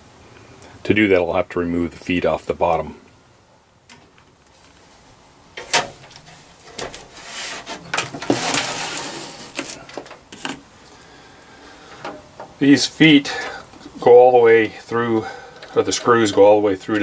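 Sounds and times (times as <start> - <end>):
metal case scraping and sliding: 5.6 - 10.6.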